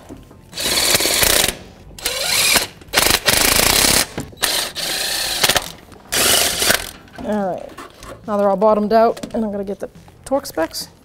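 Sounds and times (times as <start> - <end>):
power tool spinning bolts: 0.6 - 7.0.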